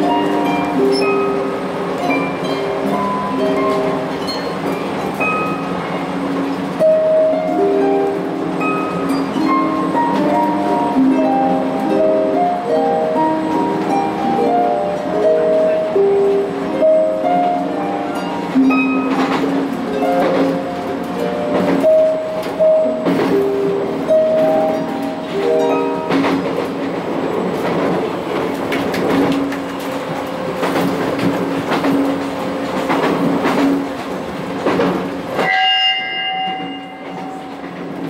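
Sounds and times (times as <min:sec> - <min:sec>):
harp plucked melody: 0:00.0 - 0:05.6, 0:06.8 - 0:26.5
train running and rail clatter: 0:00.0 - 0:38.0.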